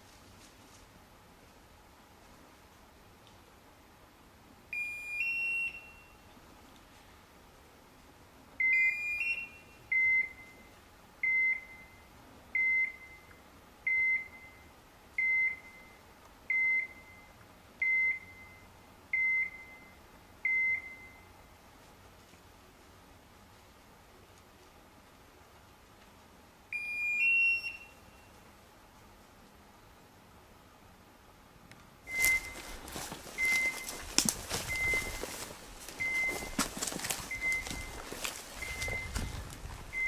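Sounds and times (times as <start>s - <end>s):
electronic beeps: 32.1s - 34.0s, 34.6s - 35.4s, 36.0s - 40.0s.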